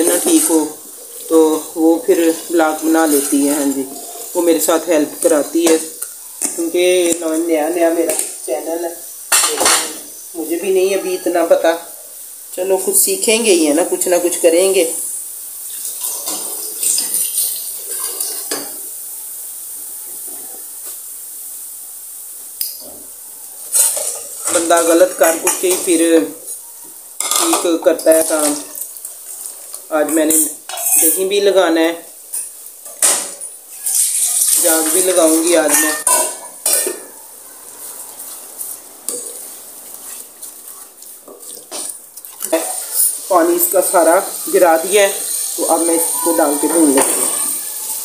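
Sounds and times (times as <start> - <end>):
spatula stirring food: 0.0 - 31.5, 32.1 - 48.0
masala sizzling in oil: 0.0 - 48.0
wooden spatula scraping a pot: 37.6 - 44.2.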